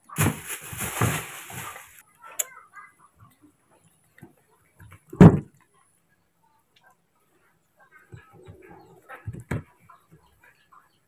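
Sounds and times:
rustling handling noise: 0.0 - 2.0.

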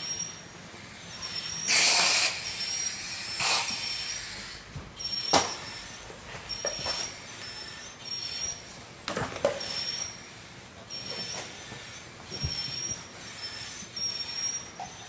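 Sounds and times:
breathing regulator air hissing: 1.3 - 4.6.

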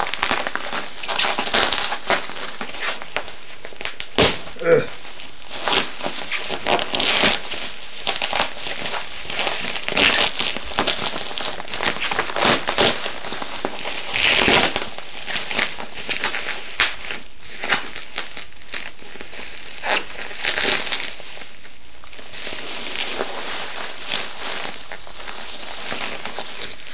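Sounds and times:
plastic packaging crinkling: 0.0 - 26.9.

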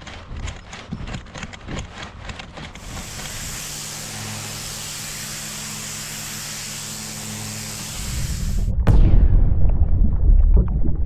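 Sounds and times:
brush scrubbing: 2.8 - 8.6
pressure washer spray hissing: 2.8 - 8.7
machine low hum: 2.8 - 9.0.

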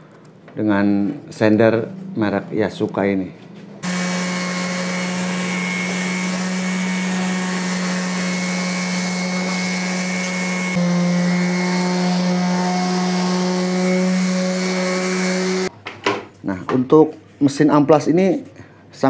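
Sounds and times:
orbital sander on wood: 3.8 - 15.7
vacuum cleaner running: 3.8 - 15.7.

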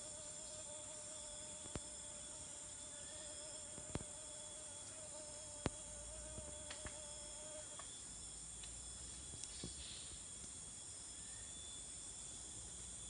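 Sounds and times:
insects singing in chorus: 0.0 - 13.0.

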